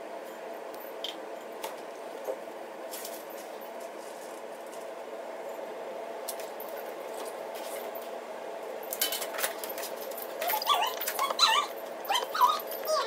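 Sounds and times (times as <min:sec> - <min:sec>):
puppy whimpering and yipping: 0:10.4 - 0:13.0.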